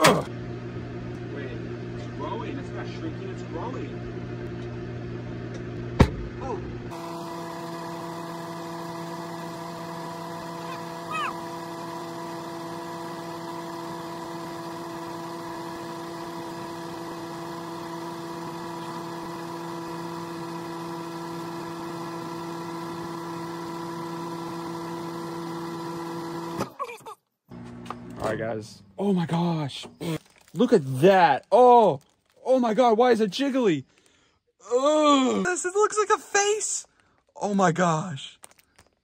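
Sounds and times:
microwave oven humming: 0.0s - 26.7s, 27.5s - 28.6s.

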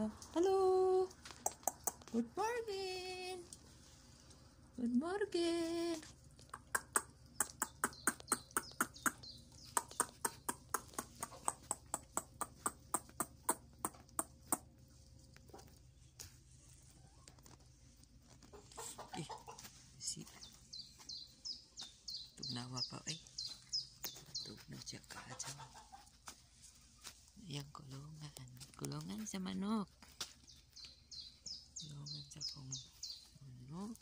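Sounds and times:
hens pecking at feed: 0.2s - 2.3s, 3.4s - 4.8s, 5.4s - 34.0s
soft chicken calls: 6.4s - 27.3s
high bird chirps: 6.6s - 11.6s, 20.2s - 24.6s, 30.5s - 33.4s.

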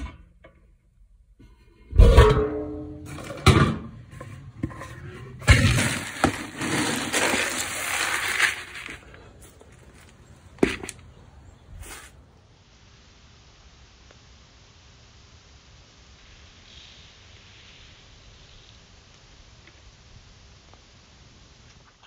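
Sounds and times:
dry corn kernels rattling: 5.4s - 11.0s.

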